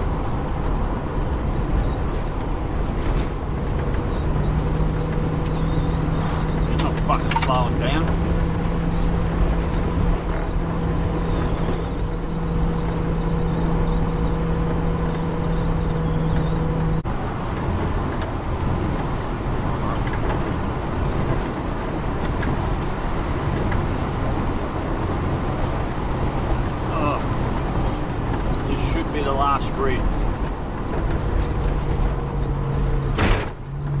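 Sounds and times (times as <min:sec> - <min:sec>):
steady hum: 0:00.0 - 0:17.1
car engine and tyre drone: 0:00.0 - 0:34.0.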